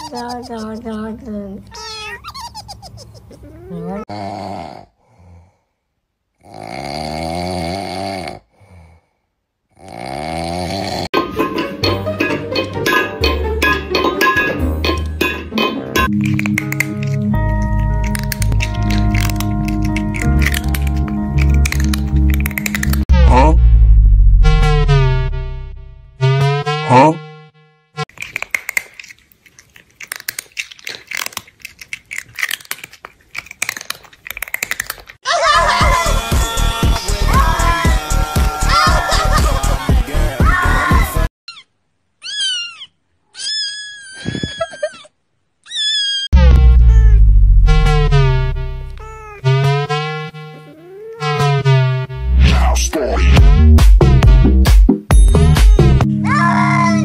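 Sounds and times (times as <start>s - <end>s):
comic wavering snores: 3.7s - 5.6s, 6.4s - 9.1s, 9.7s - 11.1s
crunchy chewing: 16.1s - 23.1s, 28.1s - 35.2s.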